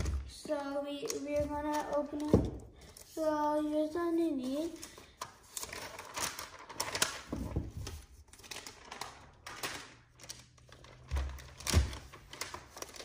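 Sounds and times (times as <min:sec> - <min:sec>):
plastic wrap rustling and crinkling: 0:04.4 - 0:13.0.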